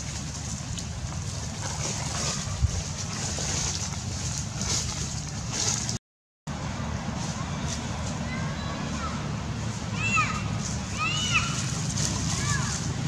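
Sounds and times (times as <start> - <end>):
wind rumbling on microphone: 0.0 - 6.0.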